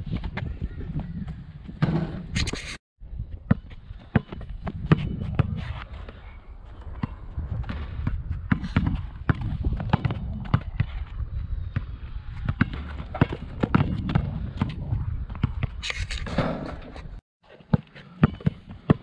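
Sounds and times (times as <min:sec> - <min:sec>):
basketballs bouncing: 0:11.7 - 0:15.8, 0:17.7 - 0:19.0.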